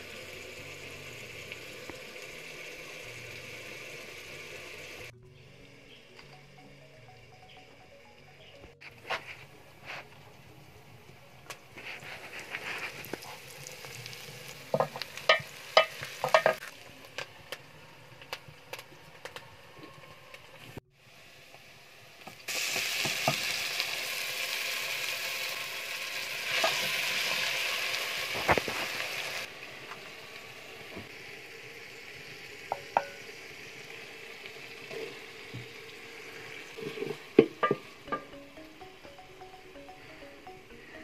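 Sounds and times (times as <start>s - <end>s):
onions sizzling in hot oil: 0.0s - 5.1s, 11.7s - 38.2s.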